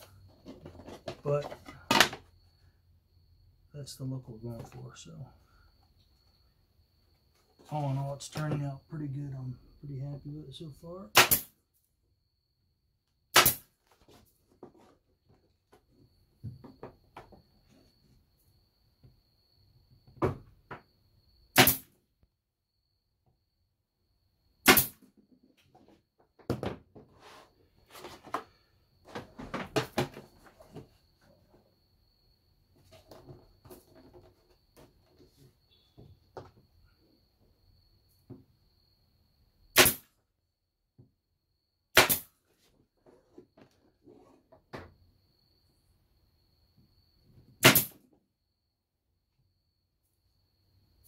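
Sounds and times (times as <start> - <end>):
wooden knocks and clatter: 0.2 - 2.3, 14.0 - 17.8, 25.2 - 27.2, 28.0 - 31.6
pneumatic staple gun shot: 11.2 - 11.5, 13.3 - 13.7, 21.6 - 21.9, 24.6 - 25.0, 39.8 - 40.1, 41.9 - 42.3, 47.6 - 48.0
pneumatic stapler firing: 21.6 - 21.9, 24.7 - 25.0, 47.6 - 48.0.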